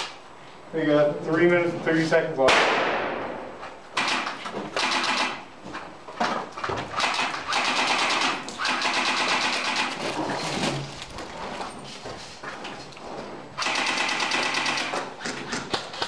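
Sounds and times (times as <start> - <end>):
airsoft rifles firing bursts: 4.0 - 5.5, 6.9 - 10.0, 13.6 - 15.8.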